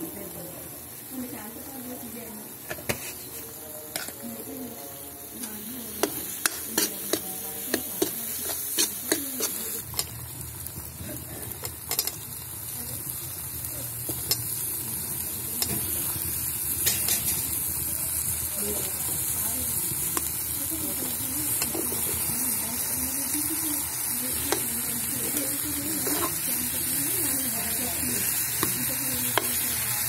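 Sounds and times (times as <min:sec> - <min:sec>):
steady frying sizzle: 0:00.0 - 0:30.0
ladle scraping and clacking on pan: 0:02.7 - 0:04.2, 0:06.0 - 0:10.1.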